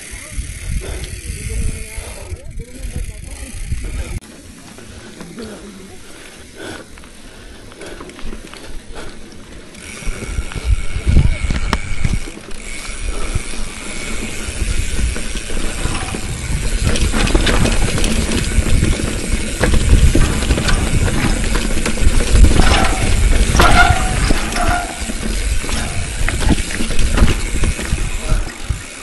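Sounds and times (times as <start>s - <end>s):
bicycle chain clicking: 0.0s - 29.0s
bicycle rattling over dirt: 0.0s - 29.0s
wind on microphone: 0.2s - 4.2s, 9.9s - 12.3s, 13.1s - 29.0s
short squeaks: 22.6s - 25.2s.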